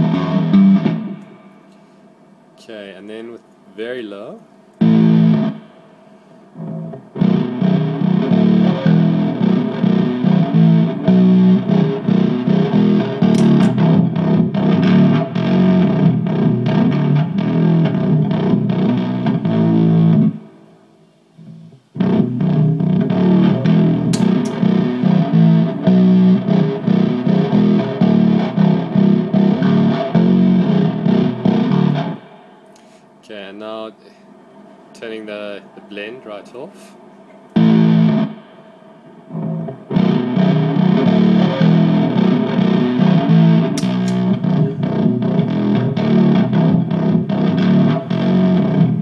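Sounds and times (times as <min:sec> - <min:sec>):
distorted fuzz bass guitar riff: 0:00.0 - 0:01.5, 0:04.8 - 0:05.7, 0:06.6 - 0:20.5, 0:21.4 - 0:32.4, 0:37.6 - 0:38.6, 0:39.3 - 0:49.0.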